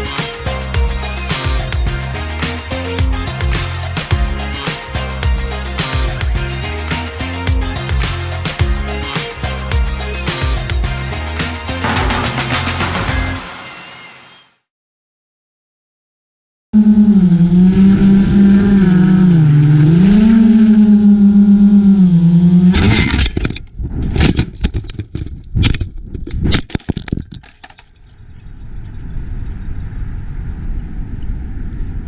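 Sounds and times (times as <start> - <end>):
drone crash smash: 11.8 - 13.9
drone motors whining: 16.8 - 23.1.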